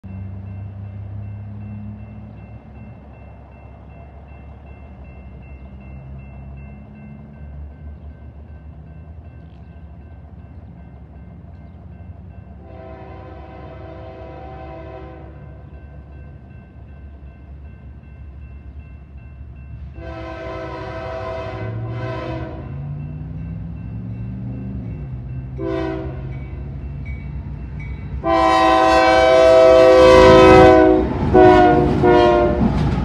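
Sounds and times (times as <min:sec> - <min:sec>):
train rumble: 0:00.0 - 0:33.0
locomotive air horn blasts: 0:12.6 - 0:15.5, 0:20.0 - 0:22.8, 0:25.6 - 0:26.3, 0:28.2 - 0:32.7.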